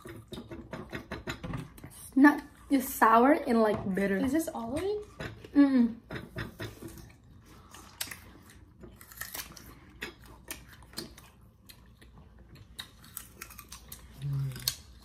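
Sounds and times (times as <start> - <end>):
people crunching apples: 6.8 - 15.0.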